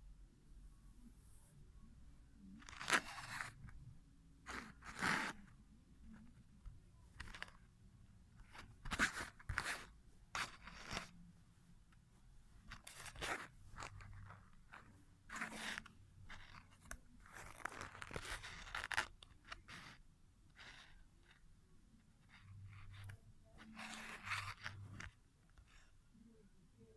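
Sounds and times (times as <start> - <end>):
paper and card rustling: 2.6 - 3.6, 7.2 - 7.7, 8.4 - 11.1, 12.7 - 20.0, 22.3 - 25.9.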